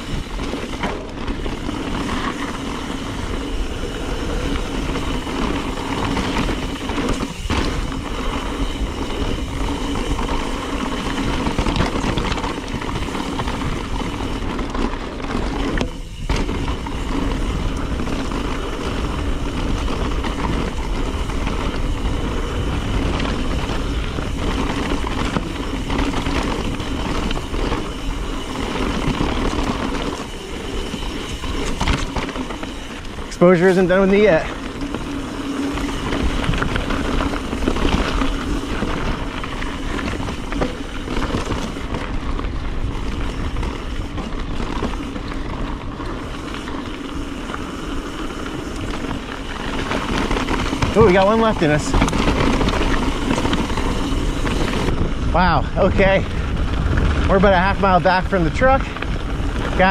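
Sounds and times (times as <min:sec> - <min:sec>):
bike tyres rolling on dirt: 0:00.0 - 0:59.9
wind rushing over microphone: 0:00.0 - 0:59.9.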